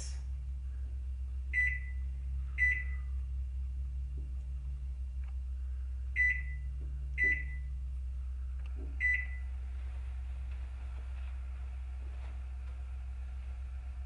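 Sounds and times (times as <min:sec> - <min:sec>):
low steady hum: 0:00.0 - 0:14.0
microwave keypad beeps: 0:01.6 - 0:02.0, 0:02.6 - 0:03.1, 0:06.2 - 0:07.7, 0:09.0 - 0:09.5.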